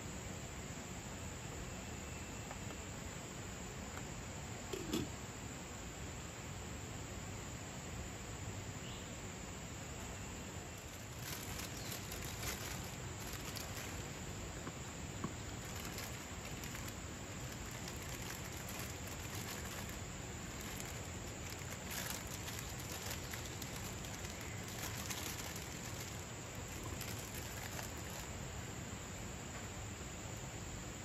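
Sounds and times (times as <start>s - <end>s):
hands rustling plastic packet: 10.7s - 14.2s, 15.5s - 28.3s.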